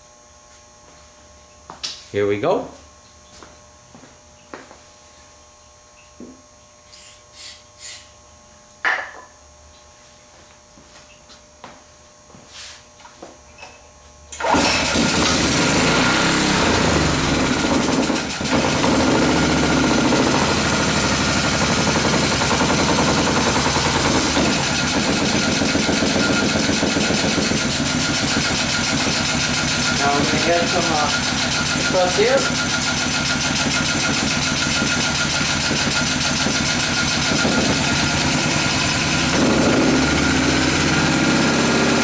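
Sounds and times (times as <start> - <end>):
small engine running loudly: 14.4 - 42.0.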